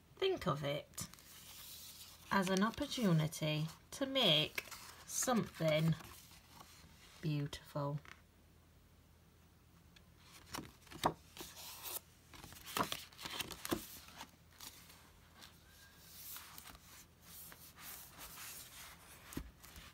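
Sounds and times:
book pages turning: 1.0s - 7.2s, 10.2s - 19.9s.

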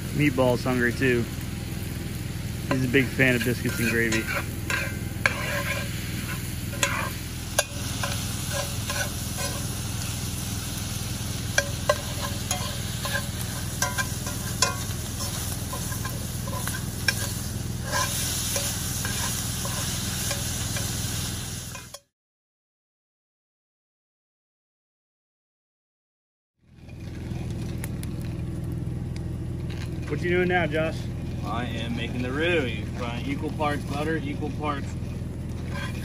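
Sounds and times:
sausage sizzling in a skillet: 0.0s - 22.0s, 32.5s - 36.0s
metal spatula scraping a pan: 2.6s - 22.0s, 32.0s - 36.0s.

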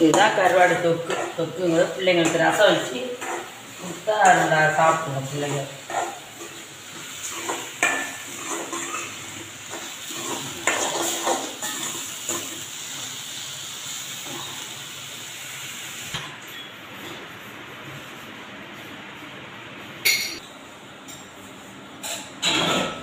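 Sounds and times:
spoon stirring and scraping pot: 0.0s - 12.5s
light sizzle: 0.0s - 20.4s
spoon clinking against pot: 20.0s - 20.4s.

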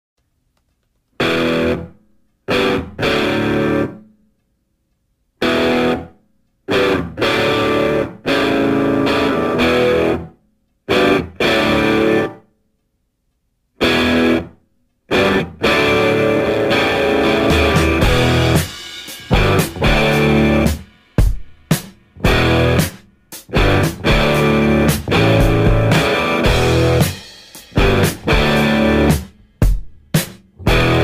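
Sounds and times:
guitar chord stabs: 1.2s - 1.9s, 2.5s - 4.0s, 5.4s - 6.1s, 6.7s - 10.3s, 10.9s - 12.4s, 13.8s - 14.5s, 15.1s - 20.9s, 22.2s - 29.6s, 30.6s - 31.0s.

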